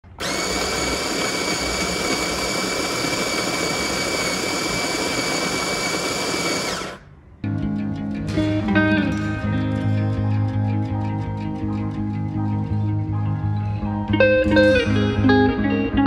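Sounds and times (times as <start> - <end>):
electric coffee grinder grinding beans: 0.0 - 7.0.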